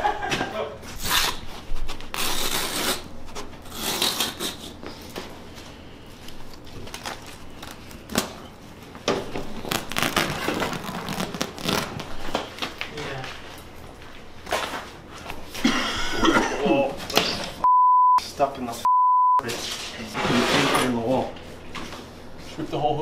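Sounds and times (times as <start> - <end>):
carpet tearing and rustling: 9.4 - 12.3.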